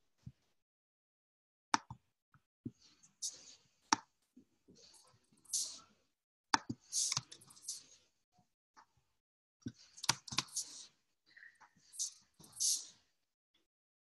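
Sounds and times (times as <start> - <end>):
computer mouse clicks: 6.6 - 7.9, 9.7 - 10.8.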